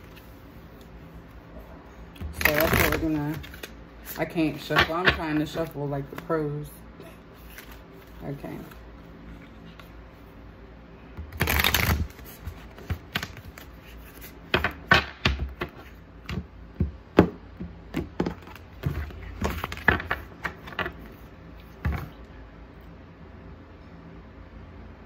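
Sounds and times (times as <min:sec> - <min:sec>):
cards shuffling: 0:02.2 - 0:06.5, 0:07.3 - 0:10.0, 0:11.2 - 0:16.4, 0:17.9 - 0:22.2.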